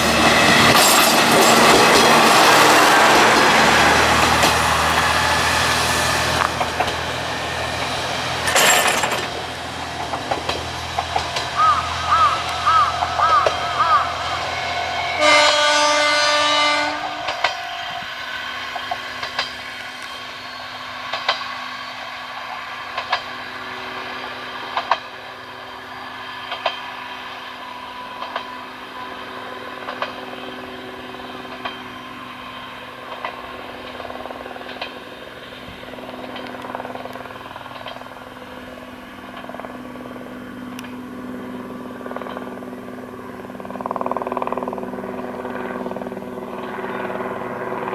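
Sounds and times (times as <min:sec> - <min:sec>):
railcar running: 0:00.0 - 0:47.9
diesel railcar horn: 0:11.3 - 0:18.8.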